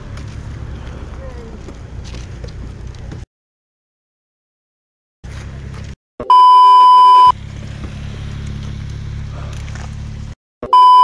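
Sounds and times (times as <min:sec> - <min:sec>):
censor beep: 0:06.2 - 0:07.3, 0:10.6 - 0:11.0.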